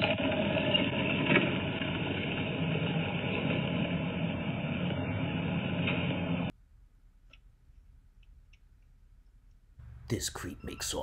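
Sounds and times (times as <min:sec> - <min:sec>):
golf cart driving: 0:00.0 - 0:06.5
faint low hum: 0:04.6 - 0:11.0.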